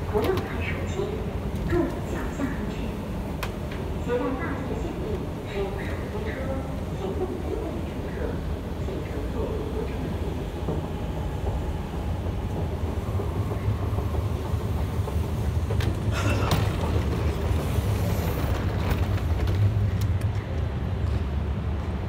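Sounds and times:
low rumble of metro station: 0.0s - 22.0s.

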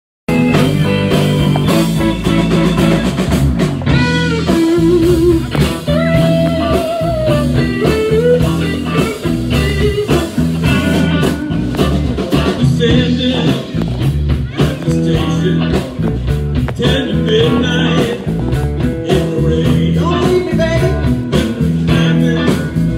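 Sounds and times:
wavering held lead notes: 0.3s - 15.6s
live blues band playing: 0.3s - 22.9s.

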